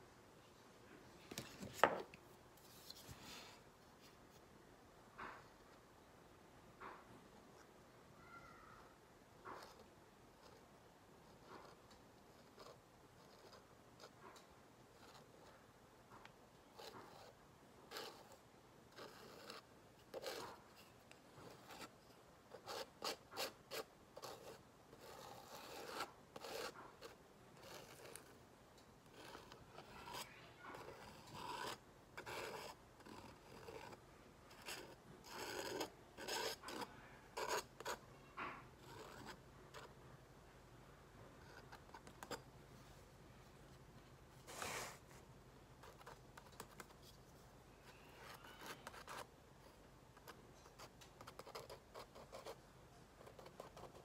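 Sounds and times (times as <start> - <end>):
palette knife scraping paint: 16.2 - 28.4, 29.0 - 40.0, 47.8 - 52.6.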